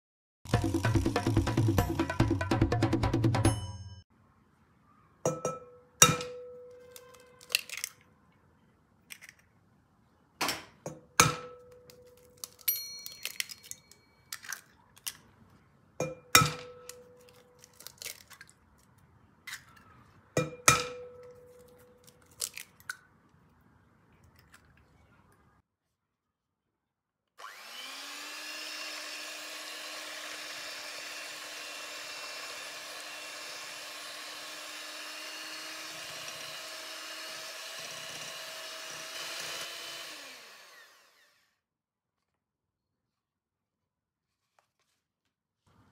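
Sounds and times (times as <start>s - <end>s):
eggs cracking on glass bowl: 11.8s - 15.2s, 16.4s - 18.6s
electric hand mixer running: 27.4s - 41.5s.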